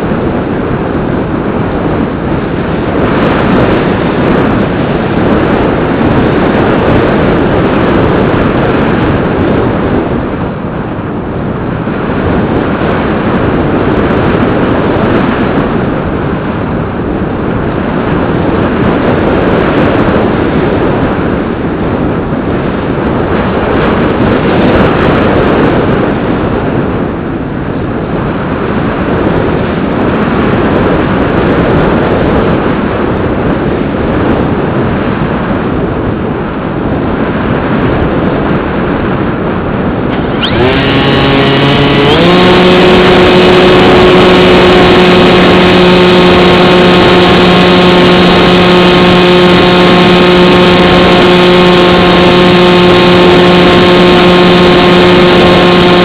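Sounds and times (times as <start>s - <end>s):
loud wind rush: 0.0s - 56.0s.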